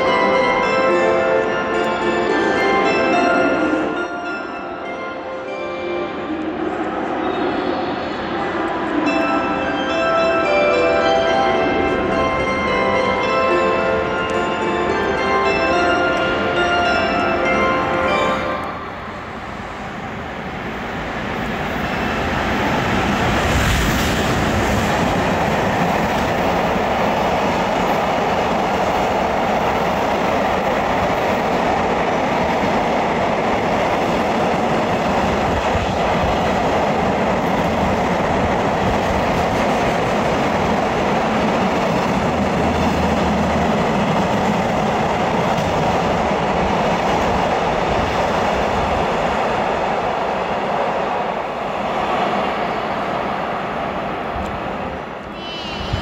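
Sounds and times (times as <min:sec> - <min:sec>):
train wheels on rails: 0:11.3 - 0:56.0.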